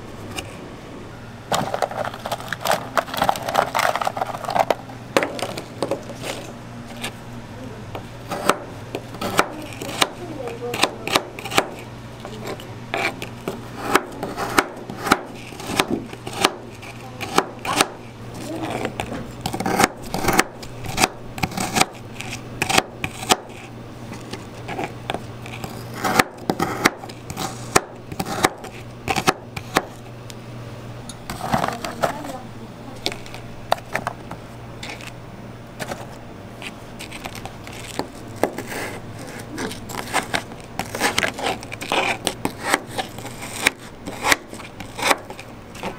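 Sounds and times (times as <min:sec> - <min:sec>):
knife chopping on plastic board: 0:08.0 - 0:11.8, 0:12.4 - 0:18.0, 0:18.7 - 0:23.7, 0:24.7 - 0:30.0, 0:37.8 - 0:45.9.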